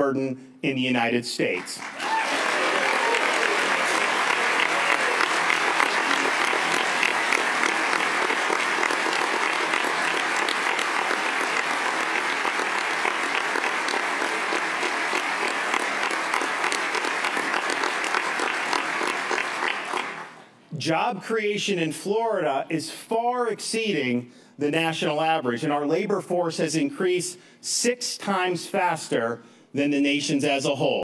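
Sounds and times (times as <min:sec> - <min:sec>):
large crowd applauding: 0:01.5 - 0:20.4.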